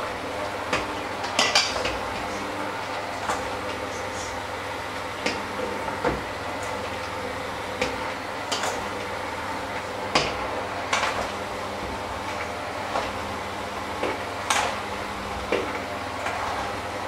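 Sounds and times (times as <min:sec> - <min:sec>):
electric hand mixer running: 0:00.0 - 0:17.0.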